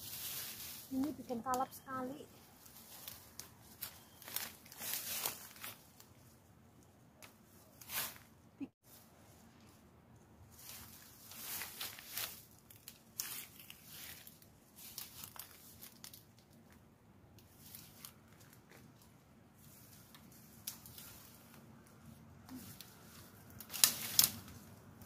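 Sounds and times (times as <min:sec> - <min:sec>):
undergrowth rustling and crackling: 0:00.0 - 0:25.0
stems snapping: 0:20.1 - 0:21.6, 0:22.5 - 0:25.0.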